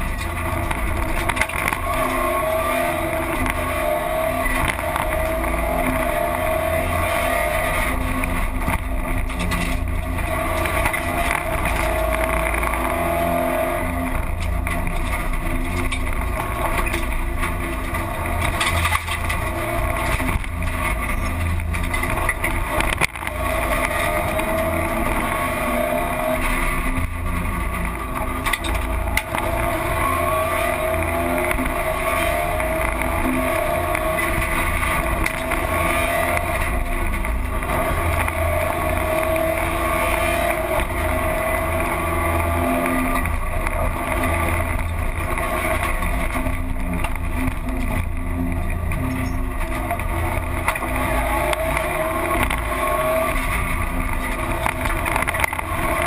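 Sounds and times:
rally car engine revving: 0:00.0 - 0:56.0
road and tyre rumble: 0:00.0 - 0:56.0.

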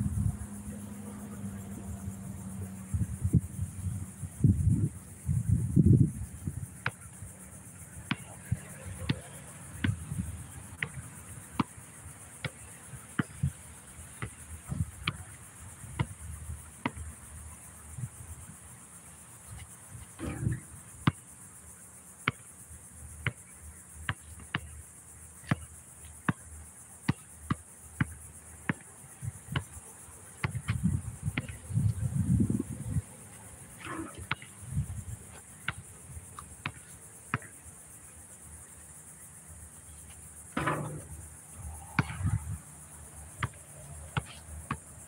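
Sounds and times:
insect buzz: 0:00.0 - 0:45.0
basketball bouncing: 0:30.4 - 0:31.6, 0:33.8 - 0:34.5, 0:40.5 - 0:41.2, 0:42.0 - 0:42.4, 0:43.4 - 0:43.6.

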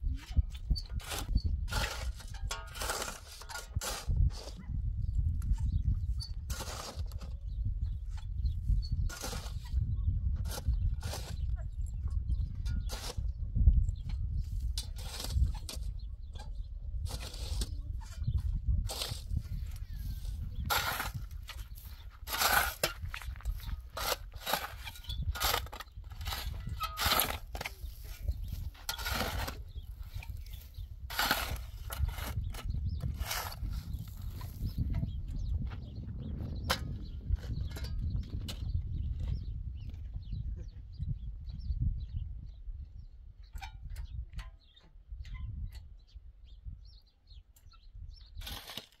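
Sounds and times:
crunching or scraping: 0:00.2 - 0:07.5, 0:09.0 - 0:12.0, 0:14.0 - 0:35.9, 0:48.4 - 0:49.0
small birds chirping: 0:04.4 - 0:49.0.

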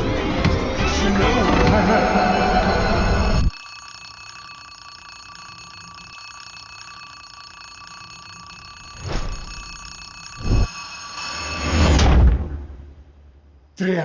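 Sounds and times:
alarm clock ringing: 0:01.8 - 0:12.1.

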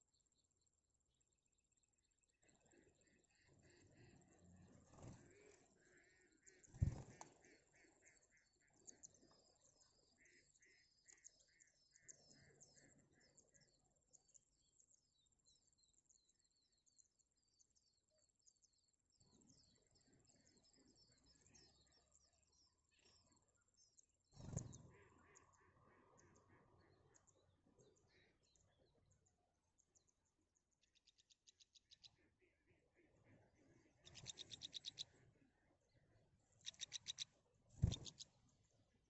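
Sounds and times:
nestling birds chirping: 0:03.5 - 0:13.3, 0:24.3 - 0:25.4, 0:33.2 - 0:35.4, 0:36.4 - 0:38.8.

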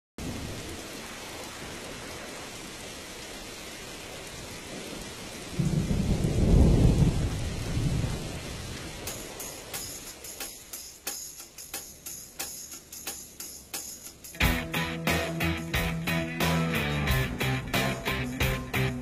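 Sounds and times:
steady rain: 0:00.2 - 0:19.0
deep rumble of thunder: 0:04.8 - 0:09.0.

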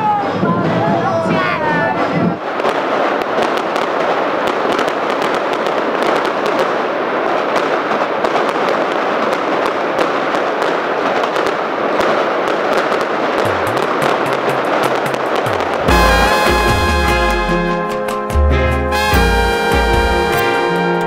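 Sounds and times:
fireworks crackling: 0:00.0 - 0:21.0.

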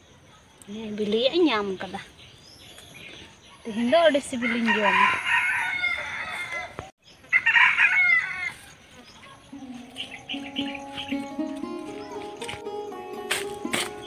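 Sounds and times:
rooster crowing: 0:04.4 - 0:08.6.

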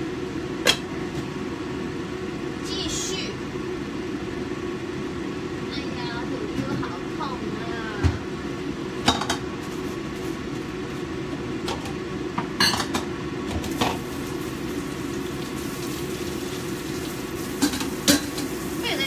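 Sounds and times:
steady low hum: 0:00.0 - 0:19.0
kitchenware clinking: 0:12.6 - 0:13.1, 0:17.6 - 0:18.5.

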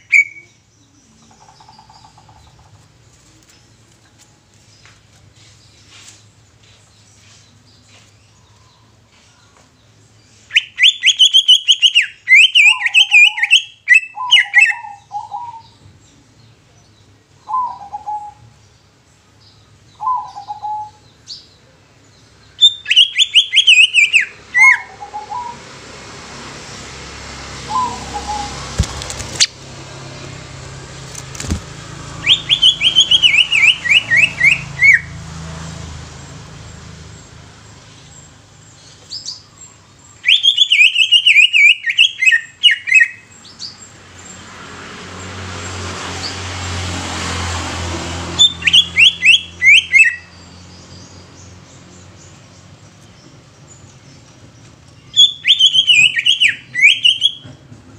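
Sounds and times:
bird singing high downward notes: 0:00.0 - 0:02.8, 0:09.8 - 0:18.8, 0:19.4 - 0:26.0, 0:26.6 - 0:31.0, 0:31.7 - 0:35.2, 0:36.2 - 0:44.5, 0:48.3 - 0:57.7
steady background noise: 0:00.0 - 0:35.4.

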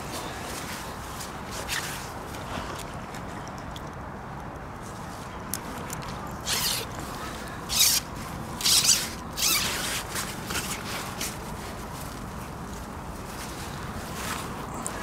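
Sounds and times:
zip and nylon fabric rustling: 0:06.4 - 0:06.9.

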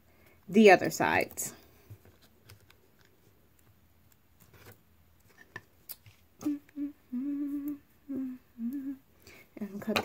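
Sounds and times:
woman humming: 0:06.4 - 0:09.1.

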